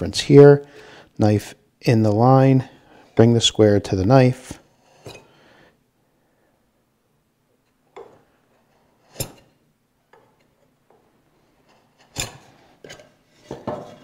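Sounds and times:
knife scraping wood: 11.4 - 14.0.

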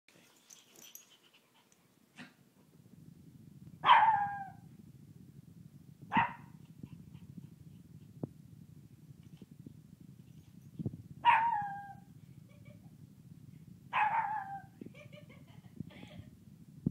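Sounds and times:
puppy barking: 3.8 - 4.6, 6.1 - 6.5, 11.2 - 12.0, 13.9 - 14.7.

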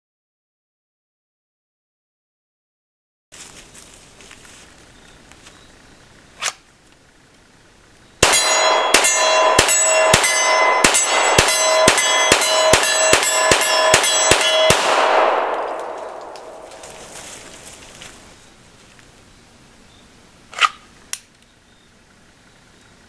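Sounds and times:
pistol shots: 8.2 - 17.2
steel target ringing: 8.2 - 17.6.

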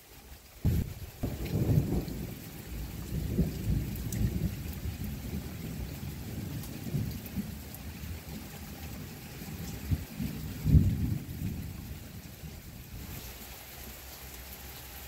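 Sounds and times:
rain falling: 0.0 - 15.0
thunder rumbling: 0.6 - 13.1.

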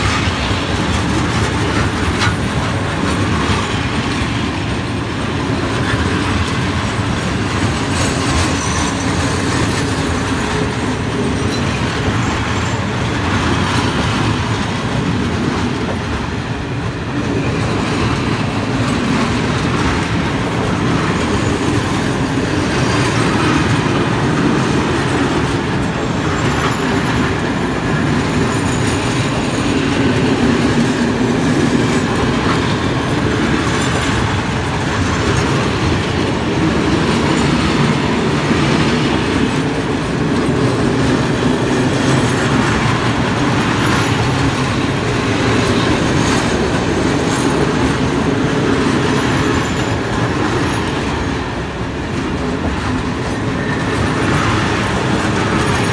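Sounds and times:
clickety-clack over rail joints: 0.0 - 55.9
steel wheels rumbling on rail: 0.0 - 55.9
faint high wheel squeal: 8.0 - 9.8.

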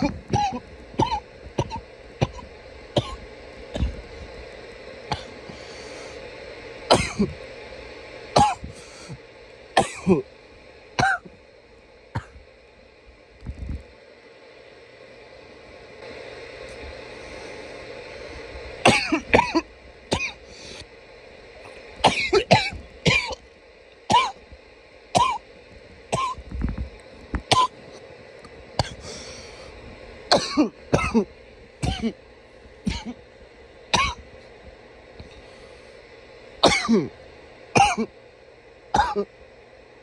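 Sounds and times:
man coughing: 6.9 - 7.4, 9.8 - 10.3, 18.9 - 19.6, 30.3 - 32.2, 32.9 - 33.2, 36.6 - 37.1, 37.8 - 38.1, 39.0 - 39.3
man clearing throat: 7.0 - 7.4, 9.8 - 10.3, 30.4 - 32.2, 32.9 - 33.2, 36.6 - 37.2, 37.8 - 38.1, 39.0 - 39.3.

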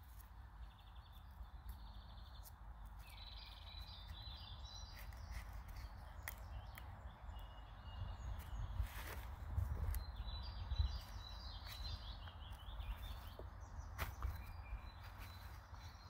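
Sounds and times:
birds chirping in trills: 0.0 - 16.0.

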